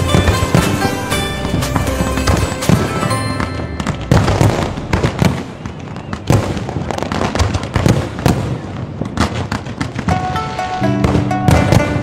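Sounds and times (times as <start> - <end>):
fireworks booming: 0.0 - 12.0
fireworks crackling: 0.0 - 12.0.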